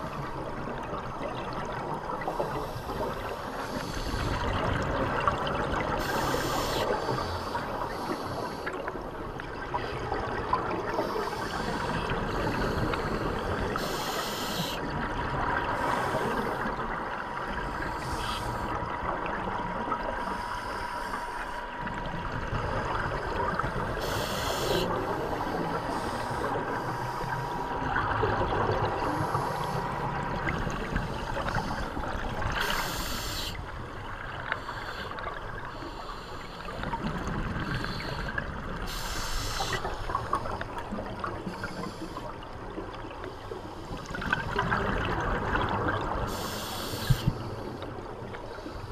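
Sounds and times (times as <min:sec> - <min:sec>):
underwater bubbling: 0:00.0 - 0:48.9
regulator breath hiss: 0:06.0 - 0:08.7, 0:11.0 - 0:14.8, 0:17.9 - 0:18.7, 0:24.0 - 0:27.7, 0:32.6 - 0:33.6, 0:38.9 - 0:40.2, 0:46.3 - 0:47.8.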